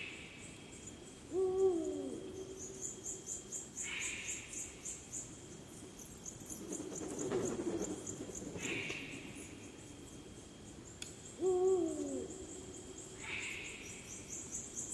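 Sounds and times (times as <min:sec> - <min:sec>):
insects chirping: 0:00.0 - 0:14.9
owl deep hoot: 0:01.3 - 0:02.6, 0:11.4 - 0:12.4.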